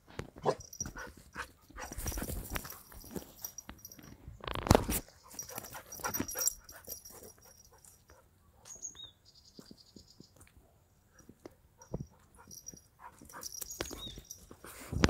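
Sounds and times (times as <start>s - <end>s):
dog scrabbling at loose earth: 0.4s - 3.6s
paws scuffing on dirt road: 0.4s - 4.0s, 4.9s - 10.6s, 11.2s - 15.0s.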